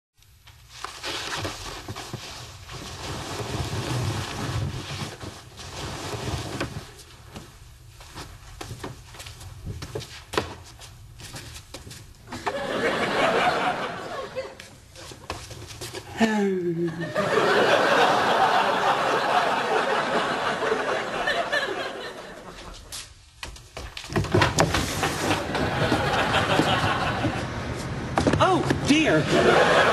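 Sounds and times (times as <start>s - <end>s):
bedcovers rustling: 0.4s - 16.1s, 17.5s - 29.9s
studio audience laughing: 12.3s - 14.7s, 17.0s - 22.9s, 25.4s - 27.6s, 29.2s - 29.9s.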